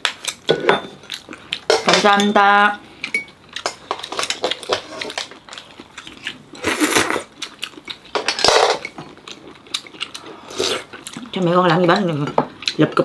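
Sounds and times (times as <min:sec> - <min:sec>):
utensils clinking against bowls: 0:00.4 - 0:05.4, 0:08.1 - 0:09.1.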